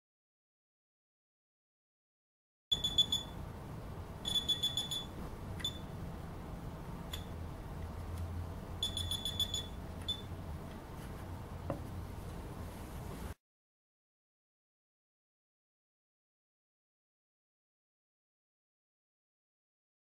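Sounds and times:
high-pitched electronic beeps: 2.7s - 3.4s, 4.2s - 5.9s, 8.8s - 10.3s.

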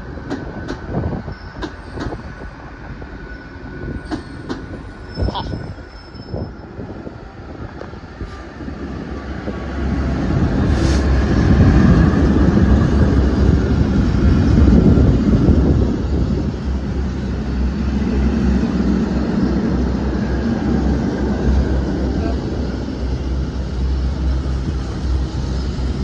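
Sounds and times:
diesel locomotive engine: 0.0s - 26.0s
brief hiss: 10.7s - 11.1s.

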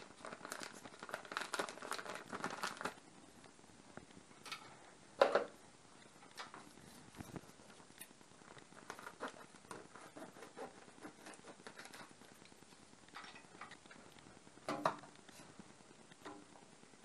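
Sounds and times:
plastic packaging crinkling: 0.0s - 3.0s, 6.4s - 12.5s.

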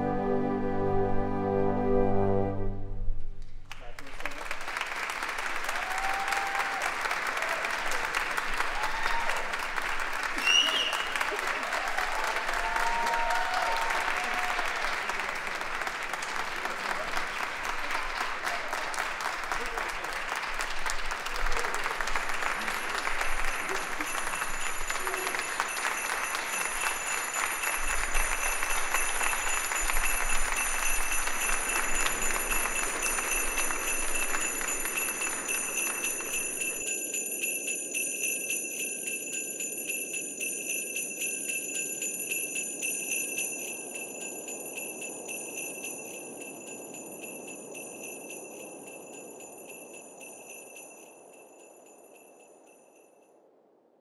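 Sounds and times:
audience applause: 3.7s - 36.8s
sleigh bells shimmering: 5.6s - 53.5s.

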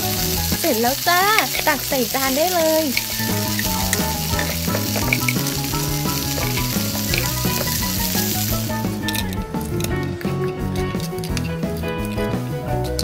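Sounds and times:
wooden spoon stirring: 0.0s - 9.3s
food sizzling in a pan: 0.0s - 9.4s.

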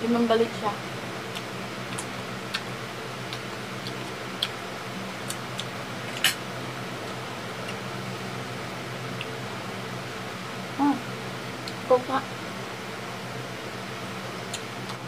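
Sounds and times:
steady low hum: 0.0s - 15.0s
chewing and lip smacks: 1.2s - 6.4s, 7.0s - 7.9s, 14.4s - 15.0s.

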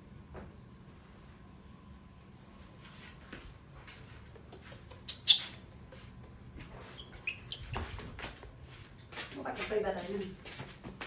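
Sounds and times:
baby monkey squeaking: 5.0s - 5.6s, 6.9s - 8.0s.

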